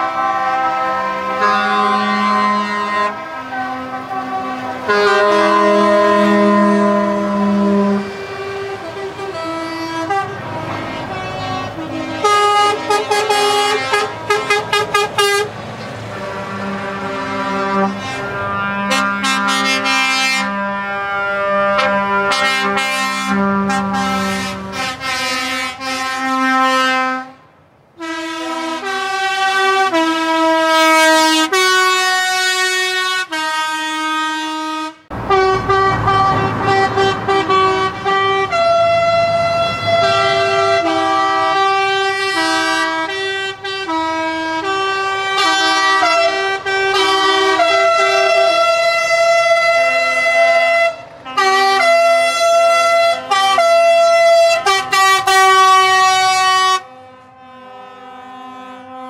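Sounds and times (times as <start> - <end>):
musical air horns playing a tune: 0.0 - 59.0
engine rumble: 1.2 - 28.8, 35.1 - 58.3.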